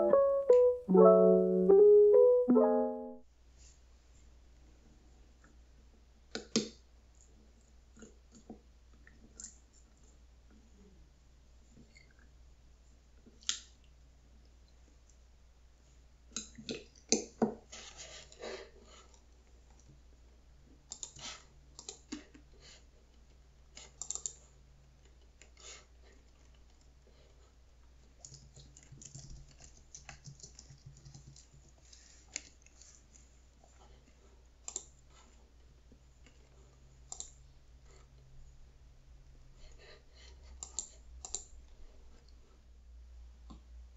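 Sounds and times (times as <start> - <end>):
keyboard typing: 28.2 - 31.6.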